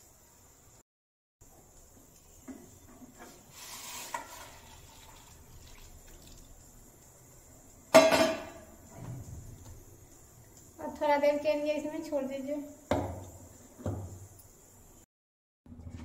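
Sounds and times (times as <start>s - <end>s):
water pouring into steel bowl: 3.5s - 6.8s
pot clanking on burner grate: 7.9s - 8.8s.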